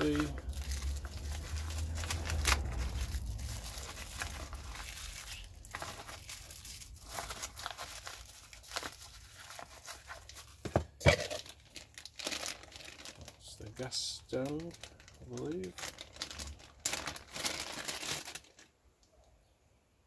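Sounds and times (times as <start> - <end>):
plastic bags crinkling: 0.0 - 18.8.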